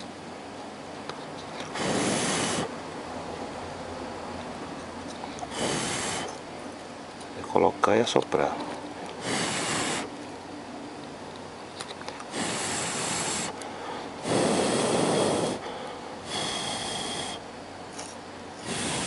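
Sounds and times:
puffs of breath: 1.7 - 2.7, 5.4 - 6.4, 9.2 - 10.1, 12.3 - 17.5, 18.6 - 19.0.

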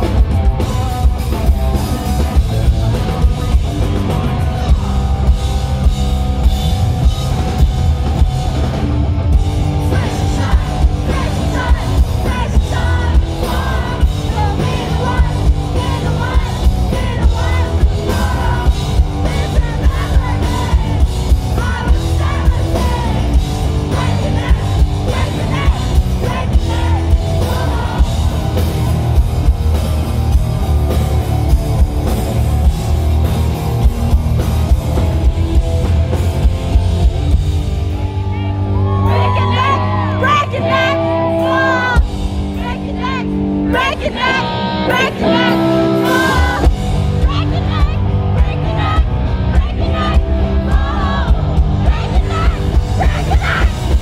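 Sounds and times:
pounding drum kit: 0.0 - 40.0, 41.9 - 54.0
live pop-punk band playing: 0.0 - 54.0
lead vocal singing: 9.5 - 29.3, 38.0 - 54.0.

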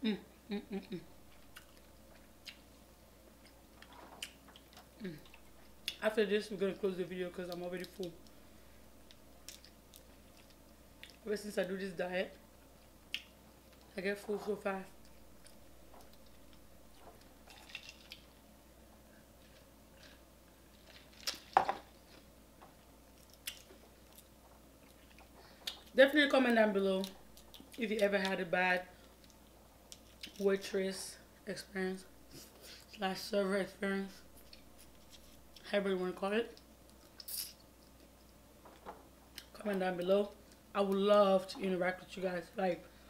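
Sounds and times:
person chewing: 1.2 - 2.8, 3.4 - 6.0, 9.0 - 11.2, 12.8 - 13.9, 15.0 - 18.4, 23.1 - 26.0, 27.0 - 27.8, 29.0 - 30.4.

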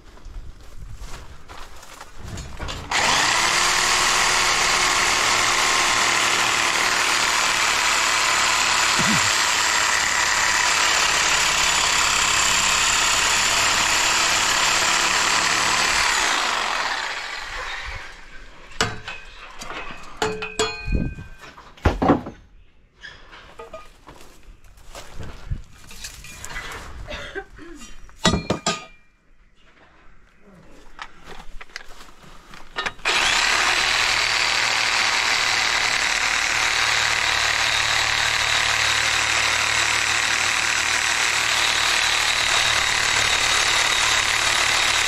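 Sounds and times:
loud machine running: 2.9 - 17.9, 33.0 - 45.0
metal knocks and clinks: 18.8 - 22.5, 23.5 - 24.0, 28.2 - 29.1.

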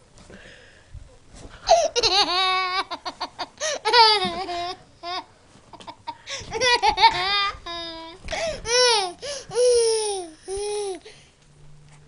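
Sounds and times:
toddler laughing: 1.7 - 11.0.

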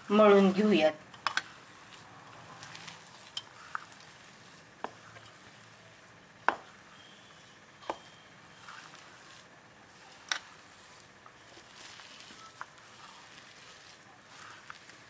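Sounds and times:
gritty rustle of grains: 0.0 - 15.0.

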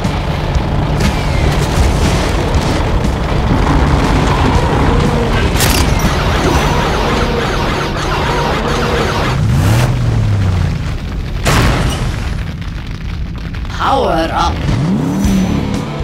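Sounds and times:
rumble of booms and engines: 0.0 - 16.0.

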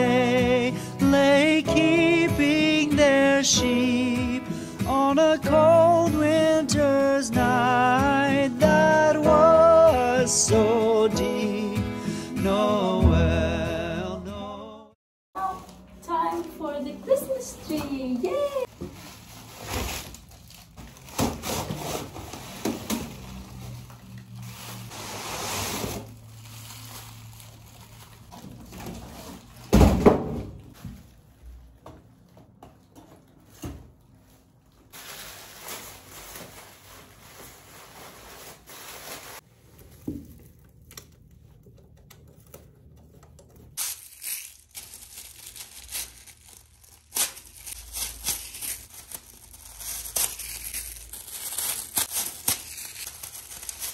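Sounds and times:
rustling: 15.4 - 29.7, 34.2 - 53.9.

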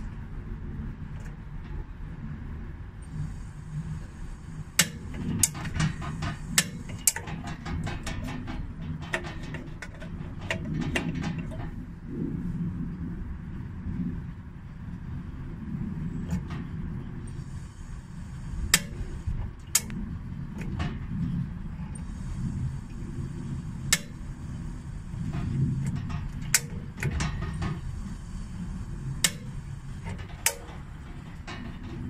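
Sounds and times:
steady low rumble: 0.0 - 32.0
gas hob igniter clicking: 4.7 - 11.7, 18.7 - 21.0, 23.6 - 28.4, 29.1 - 32.0.

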